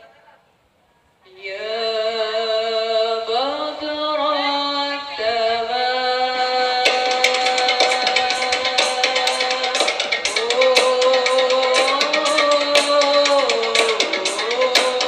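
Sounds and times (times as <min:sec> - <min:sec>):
woman singing devotional melody: 0:01.2 - 0:15.0
frame drum strikes: 0:06.9 - 0:15.0.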